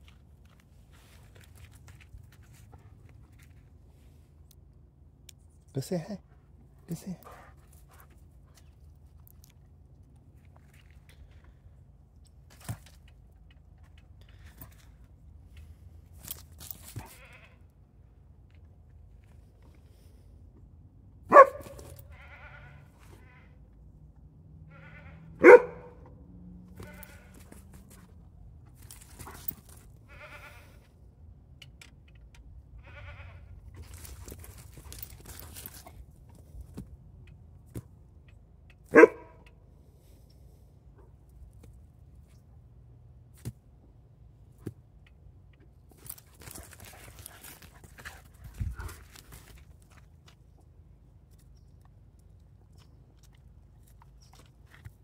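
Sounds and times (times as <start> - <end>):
dog barking: 21.3 - 22.0, 25.4 - 26.1, 38.9 - 39.4.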